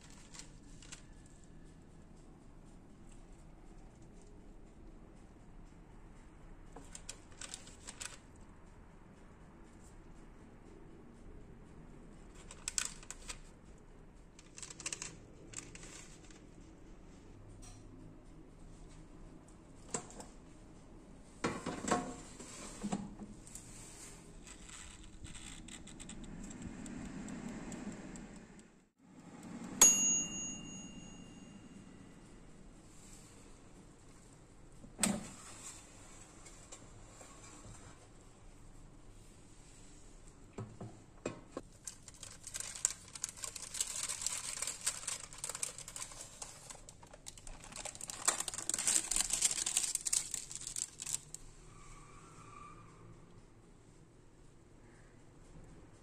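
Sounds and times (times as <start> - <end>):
baking paper crinkling: 12.4 - 13.4, 41.7 - 51.4
fan humming: 23.4 - 35.2
timer bell ding: 29.5 - 32.2.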